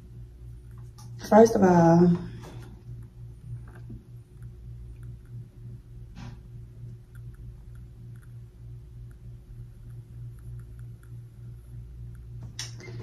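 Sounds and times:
low electrical hum: 0.0s - 13.0s
sharp click: 12.4s - 12.9s.

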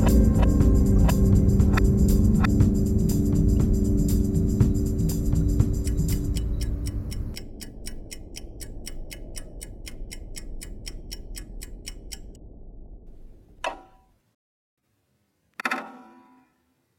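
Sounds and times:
rapid even ticking: 0.0s - 12.4s
low drone: 0.0s - 13.4s.

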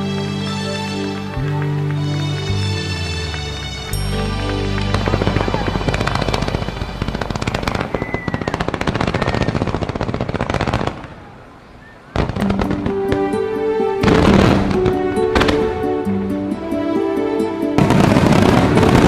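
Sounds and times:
music: 0.0s - 8.7s, 12.2s - 19.0s
fireworks crackling bangs: 4.2s - 11.3s, 12.2s - 13.4s, 14.0s - 16.0s, 17.7s - 19.0s.

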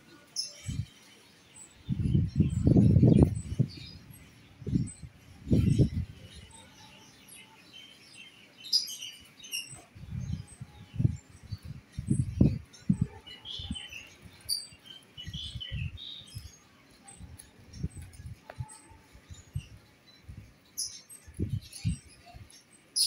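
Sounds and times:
small birds chirping: 0.0s - 23.0s
wind gusts buffeting microphone: 0.6s - 0.9s, 1.8s - 6.6s, 9.9s - 14.6s, 15.2s - 20.5s, 21.2s - 22.4s.

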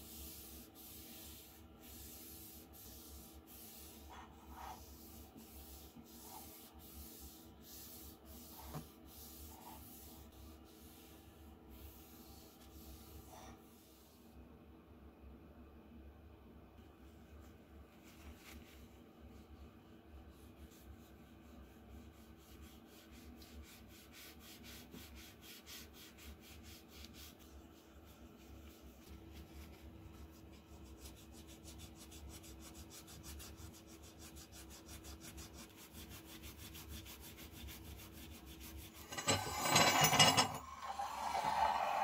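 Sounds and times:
cloth rubbing metal: 30.9s - 42.0s
metal scraping on stone: 39.0s - 42.0s.

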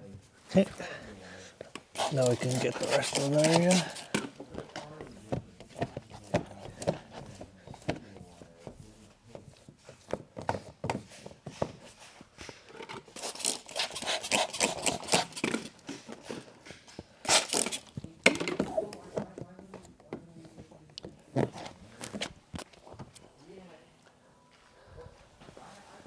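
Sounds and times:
plastic squeegee scraping film: 1.9s - 4.2s, 13.2s - 15.8s, 17.2s - 18.0s.

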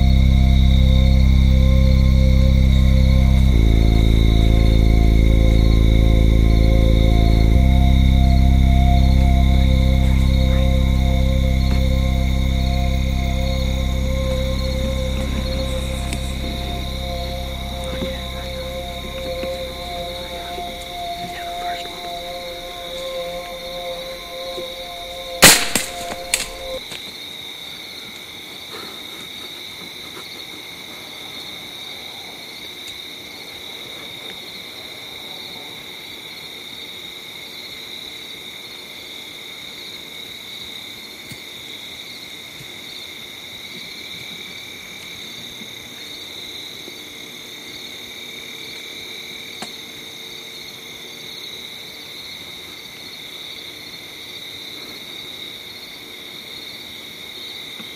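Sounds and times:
music track: 0.0s - 26.9s
crickets chirring: 0.0s - 57.9s
sharp clicks: 25.4s - 26.7s.

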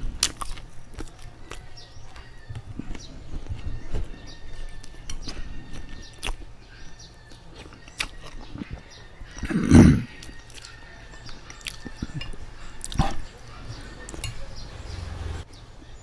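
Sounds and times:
chewing and wet mouth clicks: 0.1s - 2.3s, 4.8s - 6.5s, 7.3s - 8.8s, 10.2s - 14.4s
breathy mouth noise: 9.4s - 10.3s.

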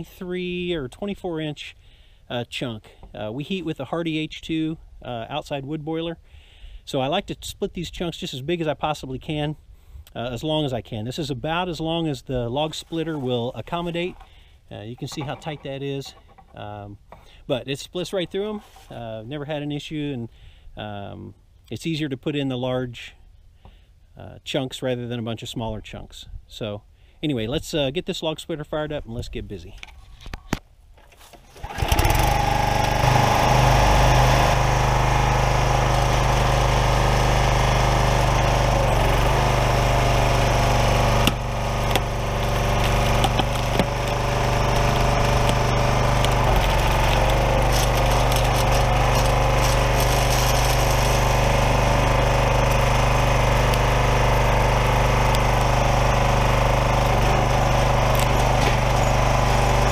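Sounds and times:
small gas engine running: 31.5s - 59.9s
log splitting cracks: 41.0s - 54.1s, 57.0s - 59.0s.

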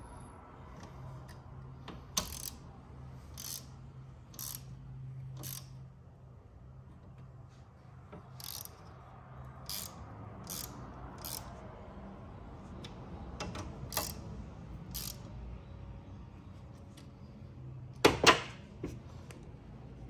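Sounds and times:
shop fan humming: 0.0s - 20.0s
hand ratchet clicking: 1.2s - 2.6s, 3.3s - 5.8s, 8.2s - 9.0s, 9.6s - 11.5s, 13.4s - 15.3s.

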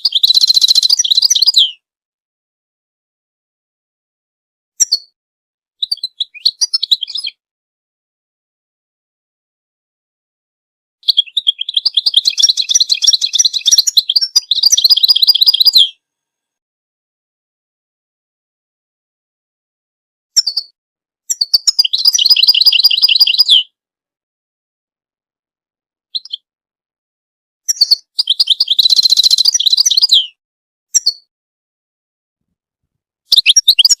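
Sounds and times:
bird twittering song: 0.0s - 1.7s, 4.8s - 5.1s, 5.8s - 7.4s, 11.0s - 16.0s, 20.4s - 20.7s, 21.3s - 23.7s, 26.1s - 26.4s, 27.7s - 31.3s, 33.3s - 34.0s.

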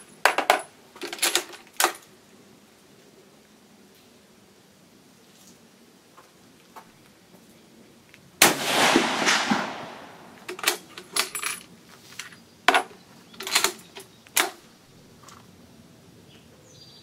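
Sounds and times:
rifle shot with echo: 8.4s - 10.5s.

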